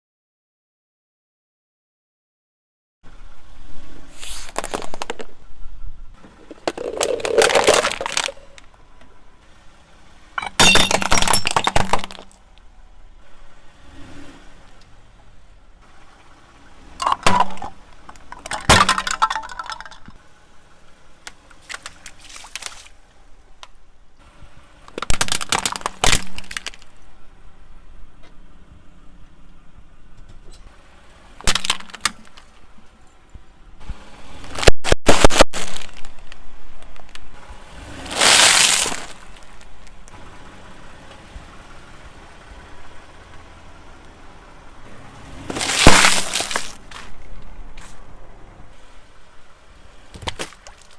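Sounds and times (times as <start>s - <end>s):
tyre crushing plastic toys: 4.3s - 5.3s, 6.4s - 8.6s, 10.4s - 12.4s, 17.0s - 20.1s, 24.9s - 26.9s, 31.4s - 32.5s, 34.5s - 36.4s, 38.1s - 39.7s, 45.4s - 47.2s, 50.1s - 50.9s.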